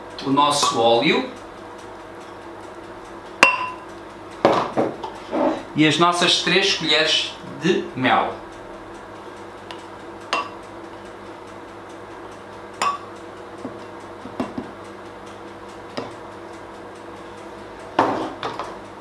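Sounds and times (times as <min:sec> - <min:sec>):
faint steady hum: 0:05.0 - 0:19.0.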